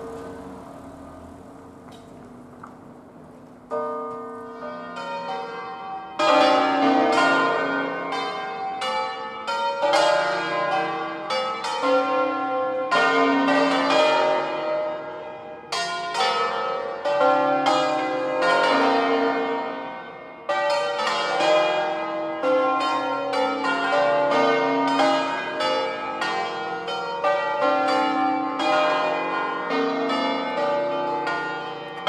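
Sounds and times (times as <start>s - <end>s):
church bells ringing: 0.0s - 32.0s.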